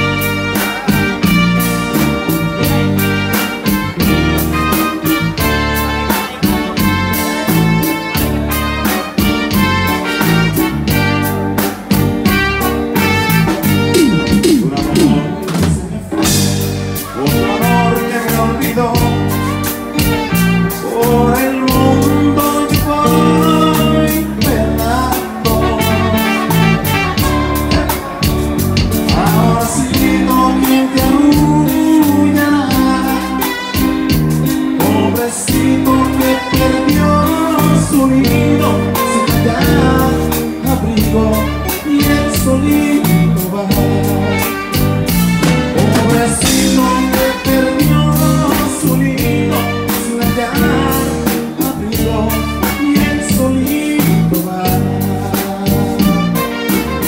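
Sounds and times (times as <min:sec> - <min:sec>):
live band playing: 0:00.0 - 0:57.0
person singing: 0:13.8 - 0:16.4, 0:17.0 - 0:19.7, 0:20.3 - 0:27.3, 0:29.0 - 0:34.0, 0:34.7 - 0:44.6, 0:45.7 - 0:57.0.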